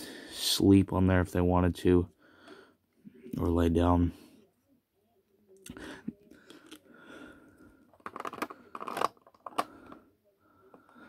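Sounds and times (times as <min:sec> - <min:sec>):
sharp plastic clicks and clatters: 0:07.9 - 0:10.0.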